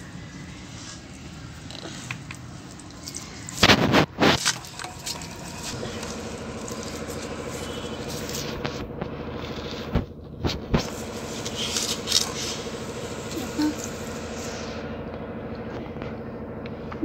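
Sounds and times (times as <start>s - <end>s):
low hum: 2.8s - 17.0s.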